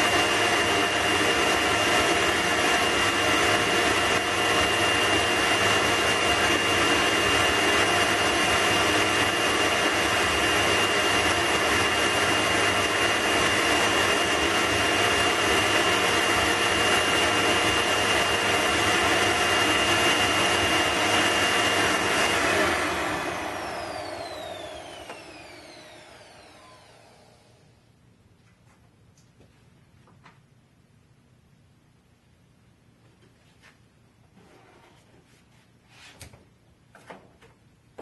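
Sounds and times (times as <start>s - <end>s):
vacuum cleaner motor whining: 0.0s - 27.9s.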